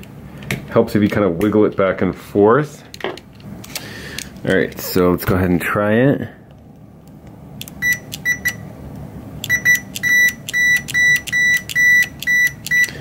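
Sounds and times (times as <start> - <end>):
short multimeter beeps: 7.8 - 8.6, 9.4 - 13.0.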